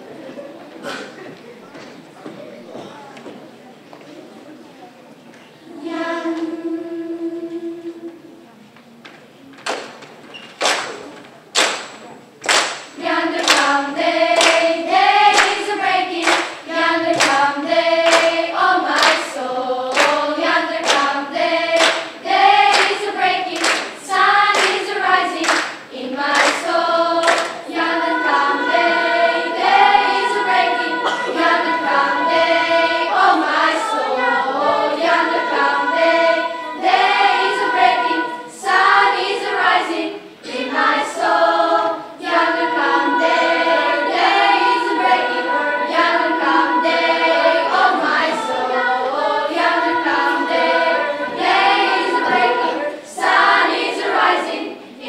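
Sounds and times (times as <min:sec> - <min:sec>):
children's choir singing: 0:00.0 - 0:02.9, 0:05.3 - 0:08.8, 0:12.5 - 0:55.0
hand claps: 0:09.6 - 0:13.8, 0:14.4 - 0:14.7, 0:15.3 - 0:17.4, 0:18.0 - 0:21.1, 0:21.8 - 0:27.6.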